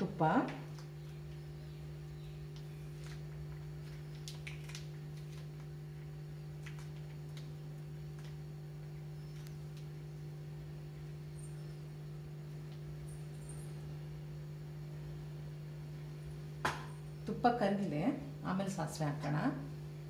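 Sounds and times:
low electrical hum: 0.0s - 20.0s
plastic packet crinkling: 2.9s - 5.8s.

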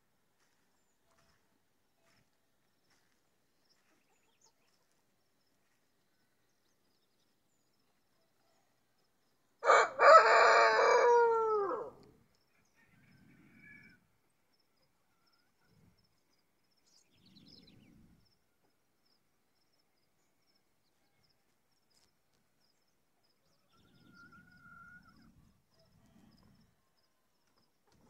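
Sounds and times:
rooster crowing: 9.6s - 12.1s.

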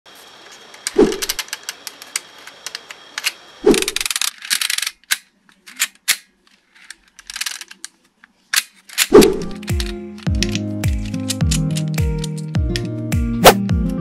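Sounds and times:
plastic gears clicking: 0.8s - 12.8s.

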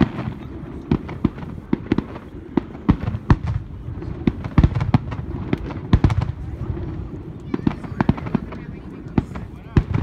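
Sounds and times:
fireworks bursting with sharp bangs: 0.0s - 10.0s
low continuous rumble: 0.0s - 10.0s.

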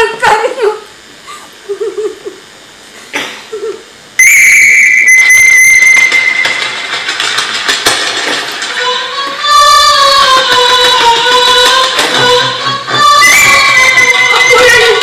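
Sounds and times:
shrill whistle tone: 4.2s - 6.9s, 13.0s - 15.0s.

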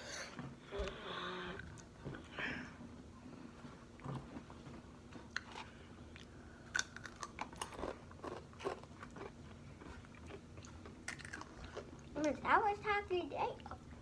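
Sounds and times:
chips being bitten and chewed: 5.2s - 12.1s.

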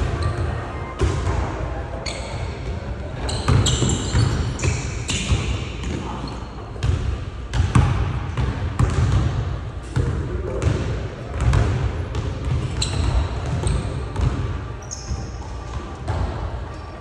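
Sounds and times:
sneakers squeaking on floor: 0.0s - 7.0s, 11.4s - 17.0s
basketball bouncing: 6.8s - 9.4s, 10.0s - 14.5s.

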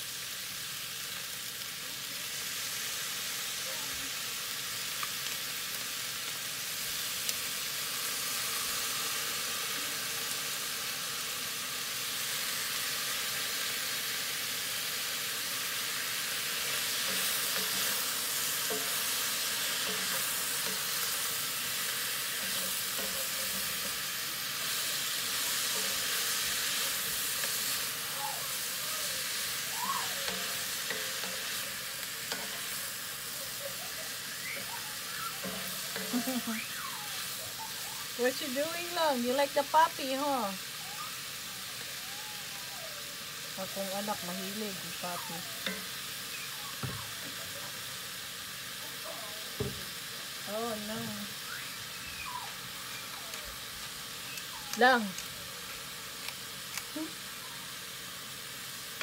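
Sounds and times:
food sizzling in a skillet: 0.0s - 59.0s
wooden spoon scraping a pan: 16.6s - 27.8s.

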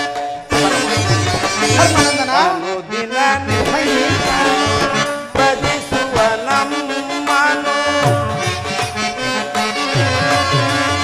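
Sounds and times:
reedy melody: 0.0s - 11.0s.

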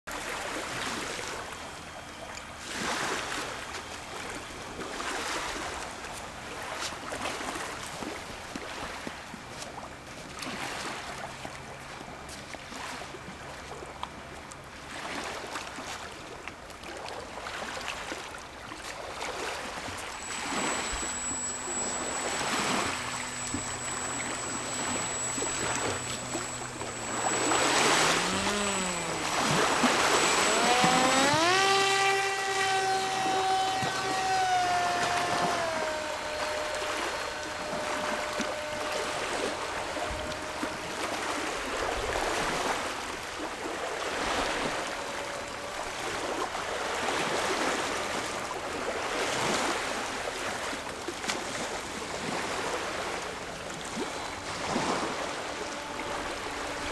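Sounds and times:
model plane motor whining: 0.1s - 15.6s, 18.8s - 56.9s.

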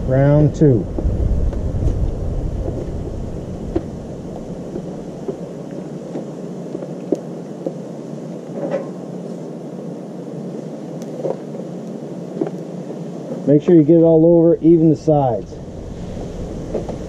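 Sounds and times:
low rumble: 0.0s - 5.6s, 14.2s - 17.0s.

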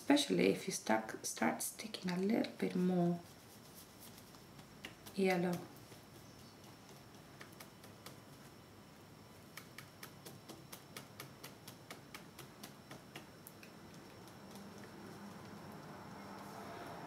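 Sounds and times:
paintbrush dabbing paint: 9.4s - 15.7s.

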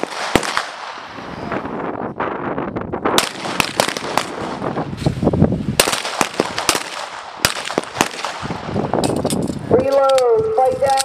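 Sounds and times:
pistol shots: 0.0s - 1.0s, 3.2s - 4.5s, 5.8s - 9.2s.

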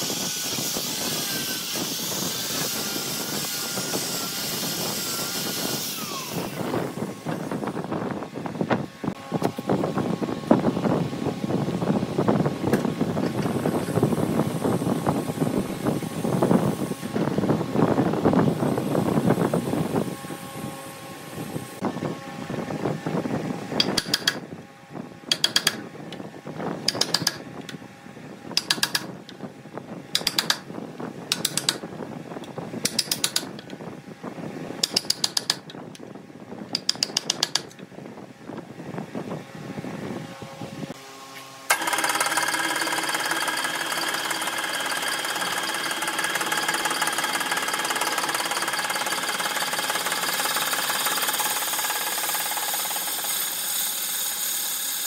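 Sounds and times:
electric motor hum: 0.0s - 23.2s, 39.8s - 55.0s.

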